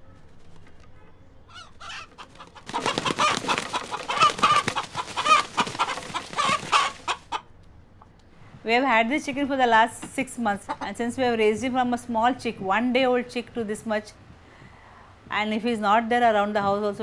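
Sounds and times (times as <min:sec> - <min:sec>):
rooster clucking: 0:01.5 - 0:07.5, 0:10.0 - 0:11.1.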